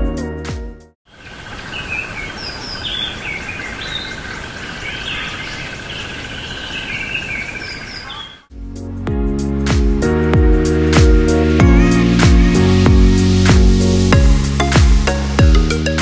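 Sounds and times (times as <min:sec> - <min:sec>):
birds chirping: 0:01.1 - 0:08.5
outdoor ambient hiss: 0:01.1 - 0:08.5.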